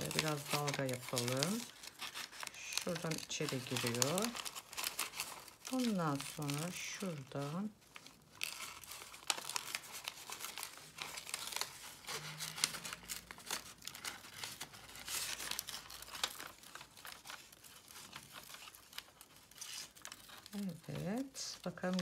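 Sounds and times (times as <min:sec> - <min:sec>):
scissors cutting paper: 0:00.0 - 0:22.0
wrapping paper crinkling: 0:00.0 - 0:22.0.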